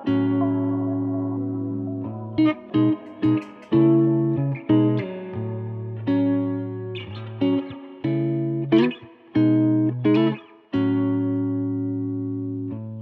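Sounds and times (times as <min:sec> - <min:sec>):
long held note: 0:00.0 - 0:04.4
plucked instrumental music: 0:00.0 - 0:12.6.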